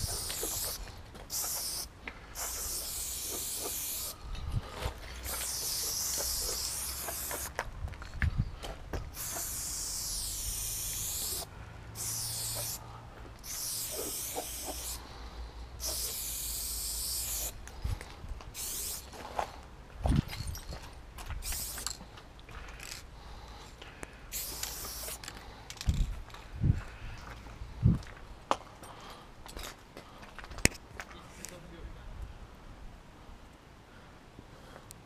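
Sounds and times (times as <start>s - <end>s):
spray paint can hissing: 0.0s - 4.2s, 5.2s - 7.6s, 9.1s - 12.8s, 13.4s - 15.0s, 15.8s - 17.6s, 18.5s - 19.2s, 21.4s - 22.0s, 24.3s - 25.3s.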